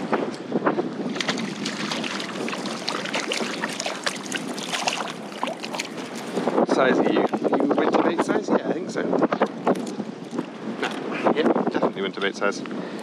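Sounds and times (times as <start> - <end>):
wind on microphone: 0.0 - 13.0
water slapping against hull: 1.0 - 7.8
fish thrashing in water: 1.1 - 6.4.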